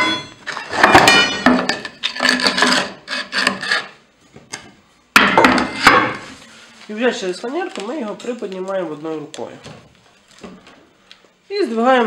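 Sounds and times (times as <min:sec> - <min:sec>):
metallic clanks: 0:00.0 - 0:02.0.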